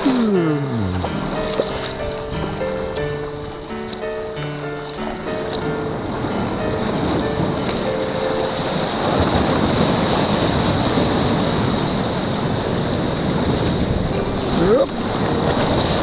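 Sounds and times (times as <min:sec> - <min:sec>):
short rising tone: 0:00.0 - 0:01.4
waves breaking on rocks: 0:00.0 - 0:16.0
waves sloshing around kayak: 0:00.0 - 0:16.0
wind buffeting microphone: 0:00.0 - 0:16.0.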